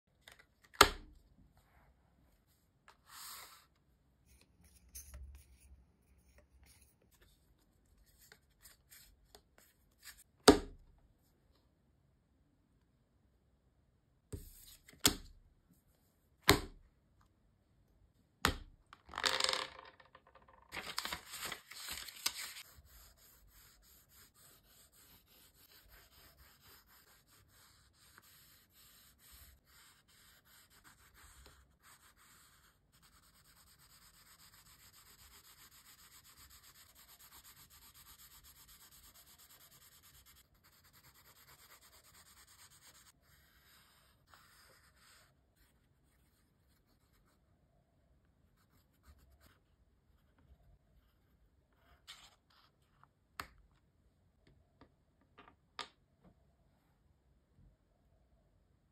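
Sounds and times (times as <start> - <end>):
paper rustle: 20.7 - 22.7
pencil scratching on paper: 22.4 - 47.4.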